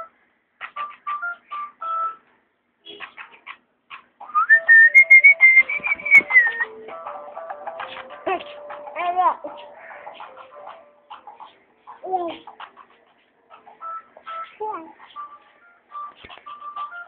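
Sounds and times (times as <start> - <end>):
high whistled note: 4.4 - 6.6
electronic beeping notes: 4.4 - 6.7.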